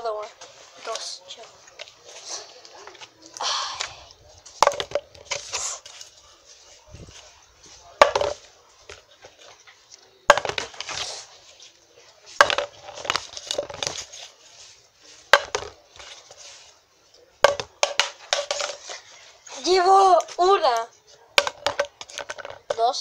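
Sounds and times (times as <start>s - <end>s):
can clattering: 4.6s - 5.6s, 10.3s - 10.9s, 12.4s - 14.0s, 17.4s - 19.0s, 21.4s - 22.8s.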